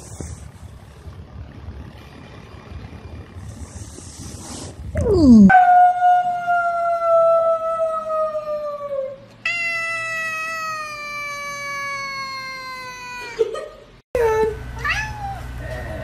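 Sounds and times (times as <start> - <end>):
cat yowling meows: 9.4 - 13.4.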